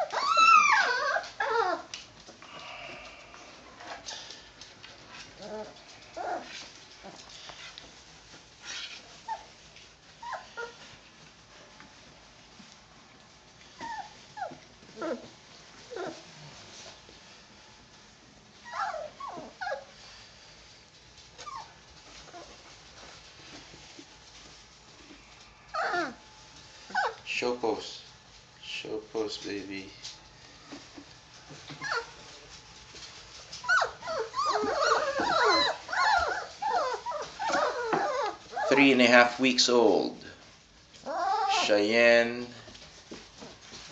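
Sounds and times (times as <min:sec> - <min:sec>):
puppies whimpering: 0:00.0 - 0:01.9, 0:18.6 - 0:19.9, 0:25.7 - 0:26.2, 0:26.9 - 0:27.3, 0:31.8 - 0:32.2, 0:33.6 - 0:39.2, 0:41.0 - 0:41.8.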